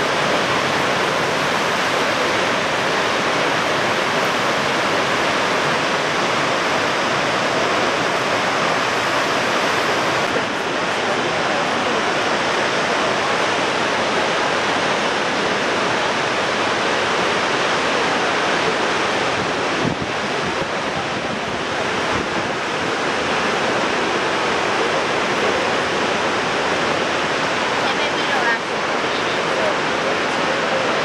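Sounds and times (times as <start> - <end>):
waterfall roaring: 0.0 - 31.0
wind on microphone: 18.7 - 24.9.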